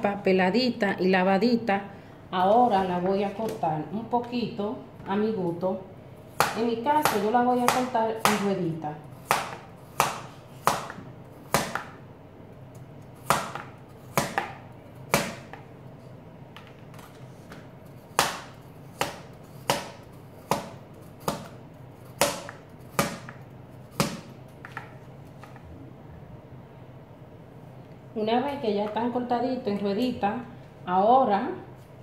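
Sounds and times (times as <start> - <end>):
knife slicing potato: 17.8 - 24.8.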